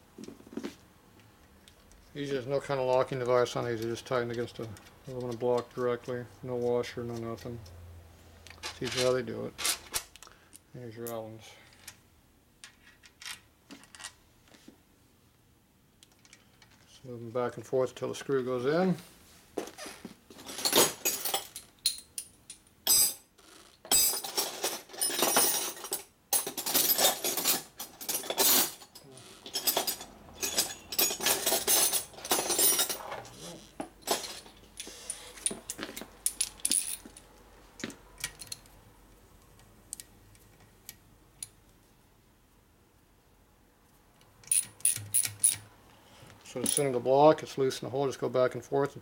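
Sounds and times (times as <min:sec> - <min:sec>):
metal tools clattering and jingling: 0:20.4 - 0:23.3, 0:23.9 - 0:33.4, 0:34.0 - 0:37.2, 0:46.6 - 0:47.0.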